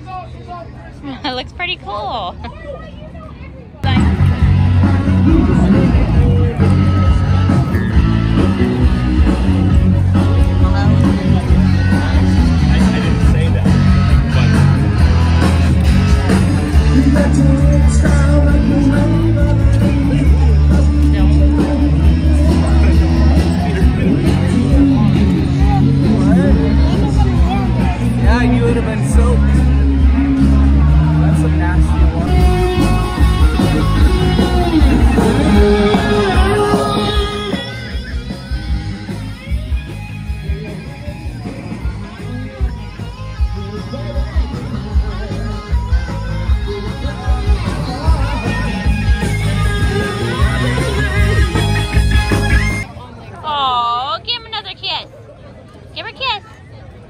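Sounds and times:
blues-rock band playing: 3.8 - 53.0
bass notes: 3.8 - 53.7
person singing: 32.3 - 37.8.

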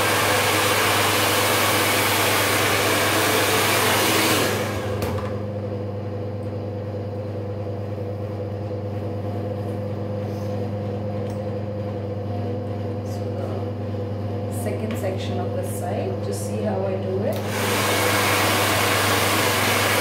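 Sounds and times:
hair dryer blowing air: 0.0 - 5.7, 14.5 - 20.0.

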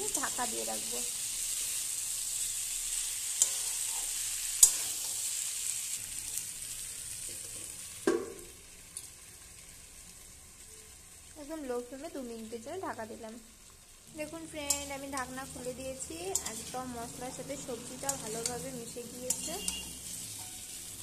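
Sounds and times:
vegetables sizzling in hot oil: 0.0 - 21.0
metal spatula scraping a pan: 2.9 - 5.4, 14.6 - 21.0
metal lid knocking onto pan: 8.1 - 8.5
spatula clinking against pan: 19.3 - 20.7.

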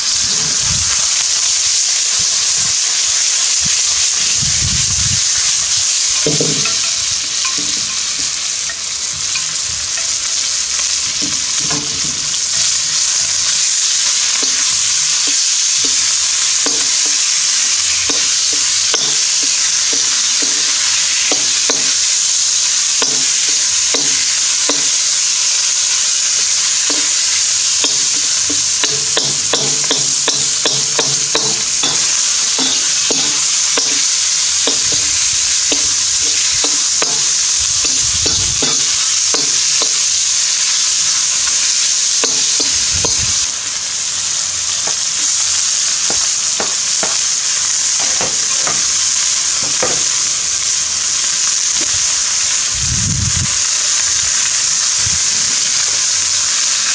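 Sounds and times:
chicken sizzling in a wok: 0.0 - 56.9
metal spatula scraping a wok: 26.4 - 41.4.

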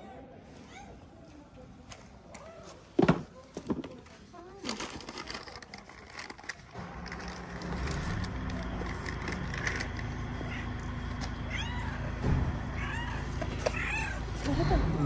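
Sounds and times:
low steady rumble: 6.8 - 15.0
kittens mewing: 10.2 - 15.0.

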